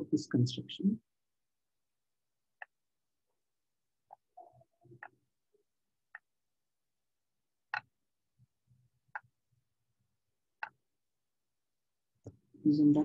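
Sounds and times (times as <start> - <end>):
stylus tapping on glass screen: 7.7 - 8.0.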